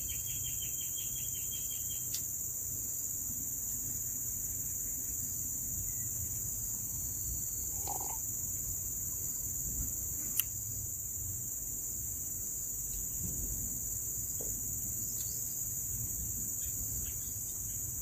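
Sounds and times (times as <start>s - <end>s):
insect chorus droning: 0.0s - 18.0s
sip from metal mug: 7.7s - 8.2s.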